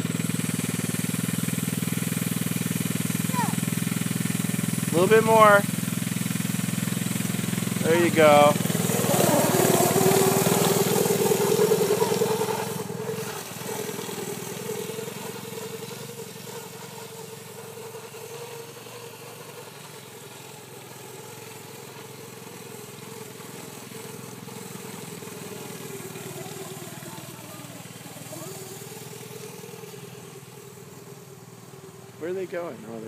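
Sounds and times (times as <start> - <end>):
snowmobile engine whine: 0.0 - 33.0.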